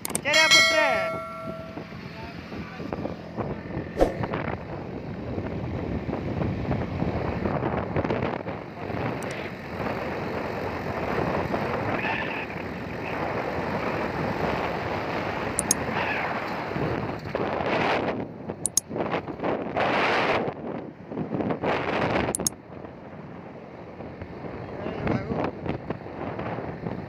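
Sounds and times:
road noise: 0.0 - 27.0
wind buffeting microphone: 0.6 - 27.0
sharp knock: 4.0 - 4.3.

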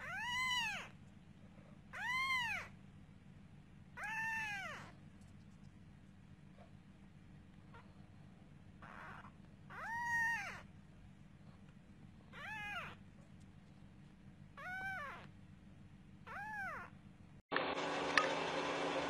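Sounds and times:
kitten meowing: 0.0 - 1.0, 1.9 - 2.8, 4.0 - 5.0, 8.8 - 10.7, 12.3 - 13.0, 14.6 - 15.3, 16.2 - 17.0.

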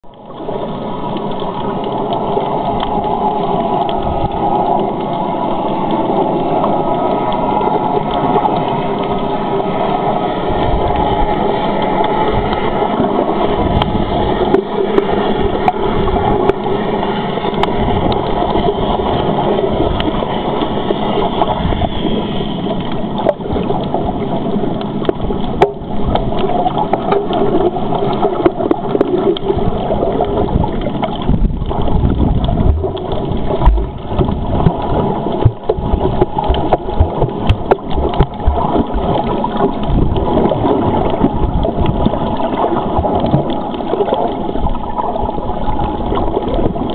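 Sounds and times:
muffled underwater rushing wash: 0.0 - 46.9
low underwater thumps and knocks: 35.4 - 39.2.

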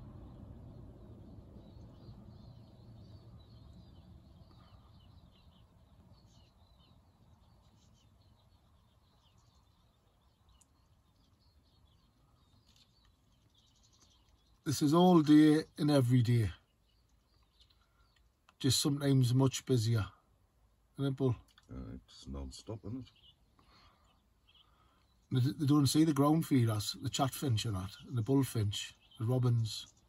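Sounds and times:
low background rumble: 0.0 - 23.1
small birds twittering: 0.0 - 30.0.

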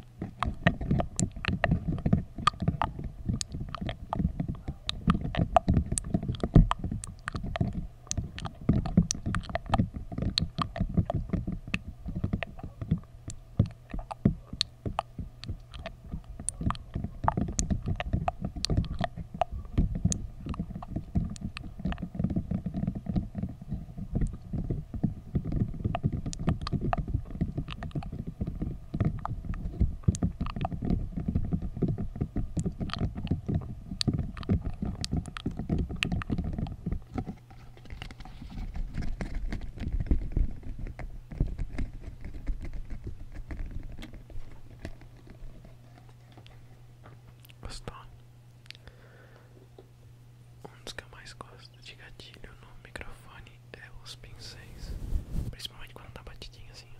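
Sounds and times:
sharp crackles and clicks: 0.0 - 46.6
rubbing thuds on microphone: 13.6 - 46.7, 54.3 - 56.4.

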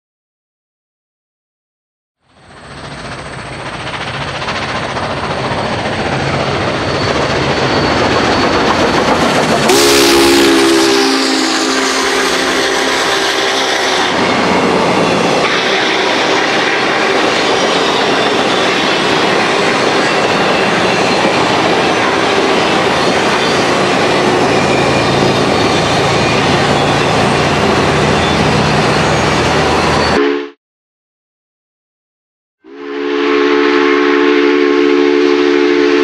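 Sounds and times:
steam locomotive passing: 2.2 - 30.4, 32.7 - 36.0
rail cars rumbling and clattering: 2.3 - 30.2
chime steam whistle: 5.5 - 9.0, 9.6 - 30.5, 32.6 - 36.0.

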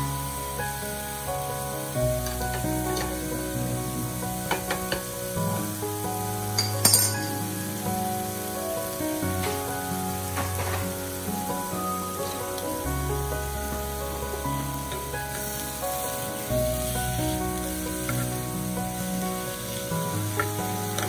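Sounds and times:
background music: 0.0 - 21.0
beef sizzling on grill plate: 1.8 - 21.0
sharp clink: 6.6 - 7.4.

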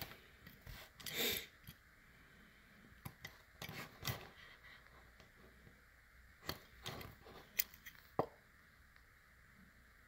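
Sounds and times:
toy car handling clicks and rustles: 6.5 - 8.1.

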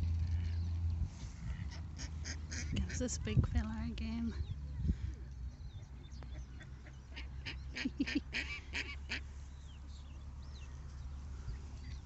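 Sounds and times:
small birds chirping: 0.0 - 12.0
waterfowl quacking: 1.4 - 3.3, 6.2 - 9.4.

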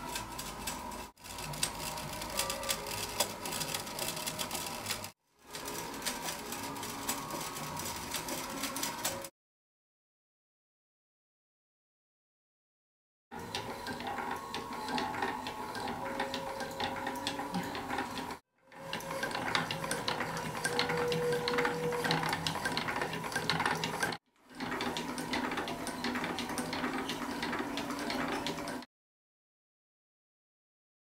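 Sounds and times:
wooden mechanism clicking and rattling: 0.0 - 9.3.

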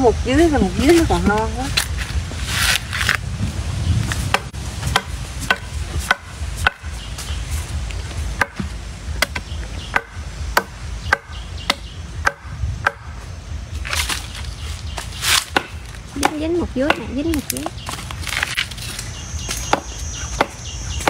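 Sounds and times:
machete chopping bamboo: 4.2 - 6.9, 8.4 - 13.2, 15.0 - 20.7.

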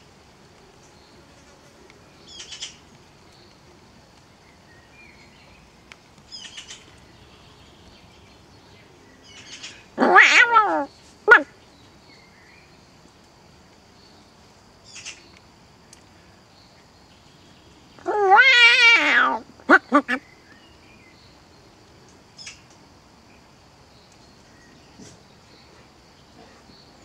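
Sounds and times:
falling mewing animal call: 10.0 - 11.5, 18.0 - 20.2.

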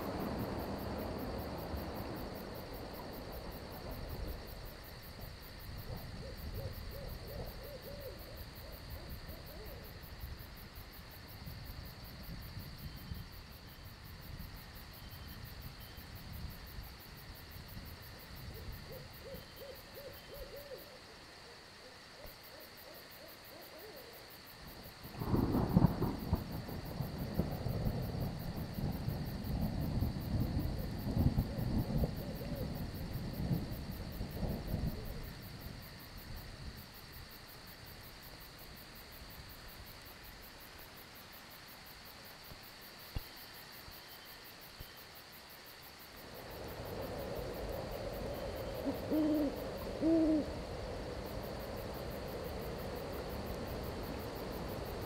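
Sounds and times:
thunder rumbling: 0.0 - 7.0, 25.0 - 35.8, 46.4 - 55.0
crickets chirring: 0.0 - 55.0
sharp thunder cracks: 25.2 - 32.2.

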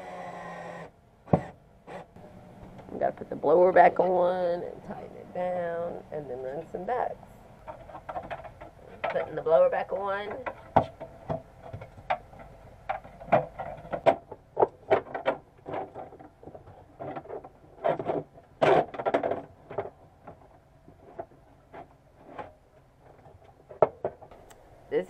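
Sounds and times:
knocks and clatter of handled parts: 7.6 - 24.4.

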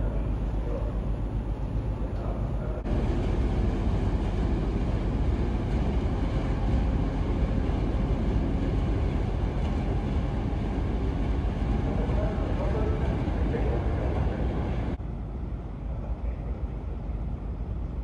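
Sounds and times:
ship engine rumble: 0.0 - 18.0.

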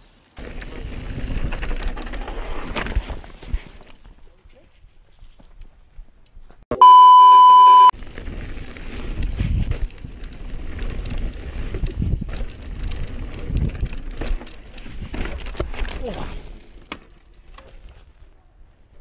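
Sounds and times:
bike rattling over bumps: 0.4 - 4.4, 8.0 - 18.4
loud electronic beep: 6.7 - 7.9.

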